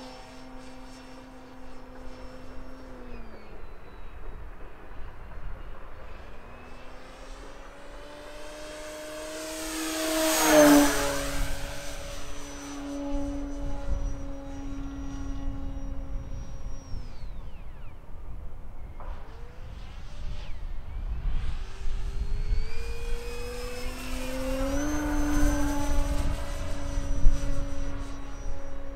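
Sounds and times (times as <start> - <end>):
high motor whine: 0.0 - 28.9
model airplane propeller hum: 0.0 - 28.9.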